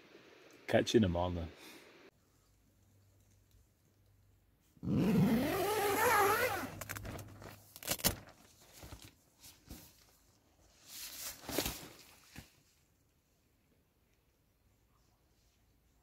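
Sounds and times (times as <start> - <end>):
tent zip pulled open: 4.8 - 8.3
fabric rustling: 5.4 - 12.8.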